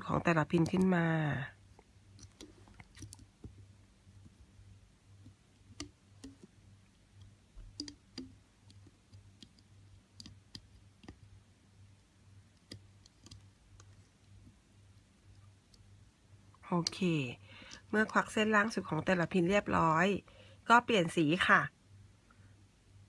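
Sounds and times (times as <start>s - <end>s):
plastic hook clicking on pegs: 7.2s - 11.2s.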